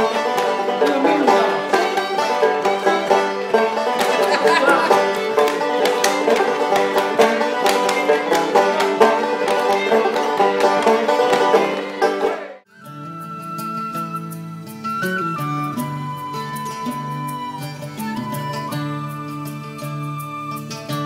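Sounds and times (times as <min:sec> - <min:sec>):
folk tune on banjo and fiddle: 0:00.0 - 0:21.0
wooden dancing doll clacking: 0:03.9 - 0:12.0.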